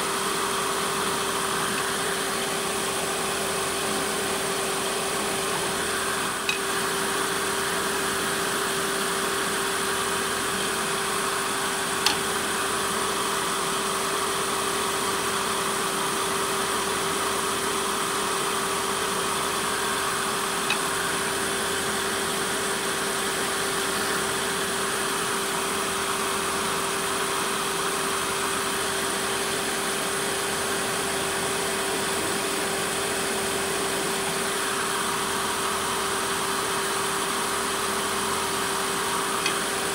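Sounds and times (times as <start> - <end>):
wood lathe humming: 0.0 - 15.3, 17.0 - 39.9.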